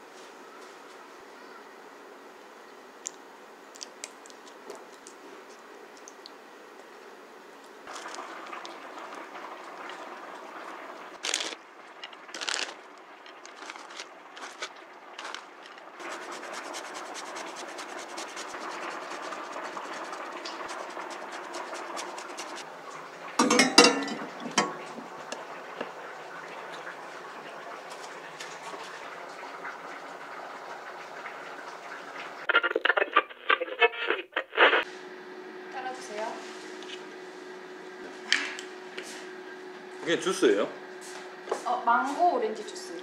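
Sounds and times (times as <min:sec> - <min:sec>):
grated cheese pattering: 0:11.2 - 0:22.6.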